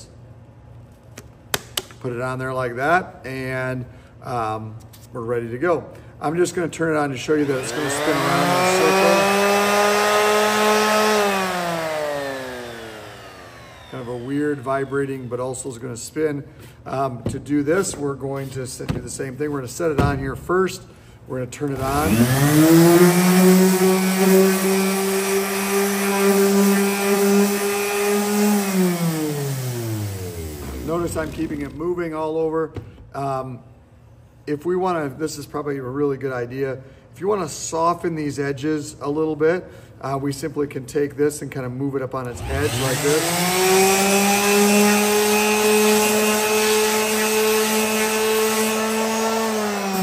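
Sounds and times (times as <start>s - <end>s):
orbital sander sanding wood: 7.1s - 15.4s, 21.7s - 32.0s, 42.3s - 50.0s
sander motor winding down: 7.2s - 15.4s, 21.7s - 32.0s, 42.3s - 50.0s.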